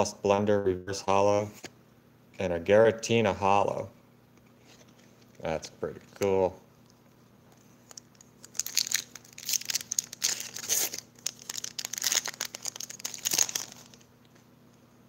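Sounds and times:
foil wrapper tearing and crinkling: 7.9s - 14.1s.

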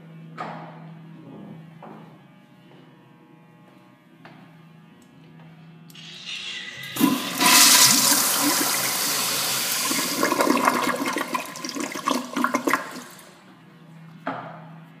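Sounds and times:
toilet flushing: 5.9s - 13.4s.

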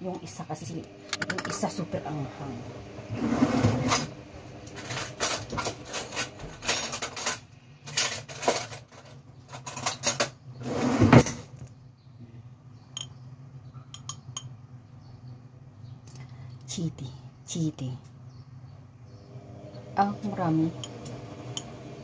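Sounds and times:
metal spoon clinking on glass: 13.0s - 13.2s, 13.9s - 14.5s.

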